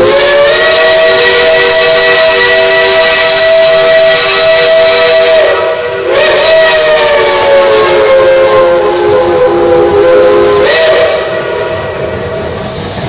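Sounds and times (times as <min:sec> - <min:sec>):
steam locomotive chime whistle: 0:00.0 - 0:13.0.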